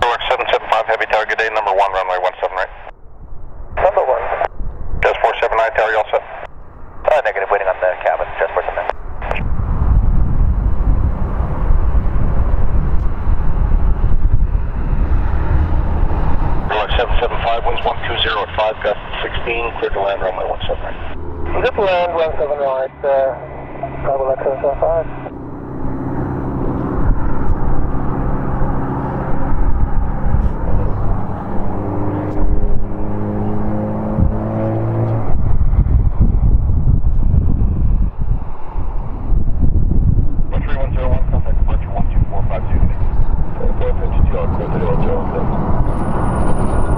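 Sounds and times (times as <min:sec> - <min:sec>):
jet engines low rumble: 0:00.0 - 0:46.9.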